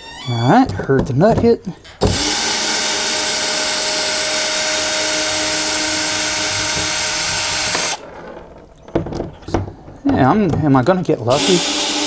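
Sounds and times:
power drill running: 0:02.0 - 0:08.1, 0:11.3 - 0:12.0.

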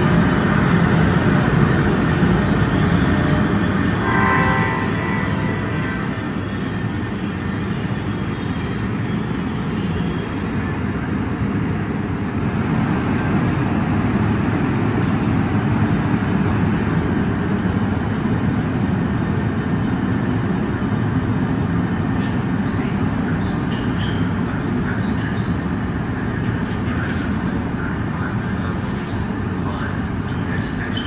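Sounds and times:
train wheels rumbling: 0:00.0 - 0:22.6.

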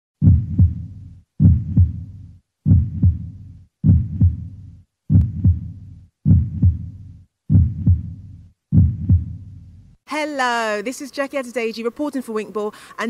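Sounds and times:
heartbeat thumps: 0:00.2 - 0:09.9.

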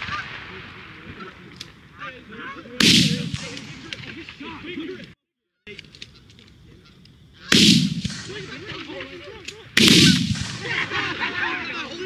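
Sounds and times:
shotgun blasts: 0:02.8 - 0:04.5, 0:07.5 - 0:09.1, 0:09.8 - 0:11.2
geese honking: 0:05.6 - 0:09.3.

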